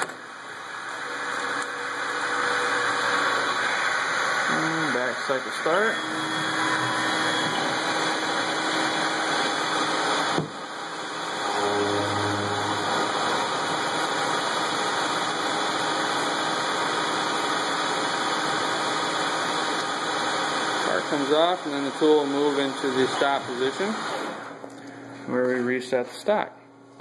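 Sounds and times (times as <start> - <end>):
metal lathe running: 0.9 - 19.6.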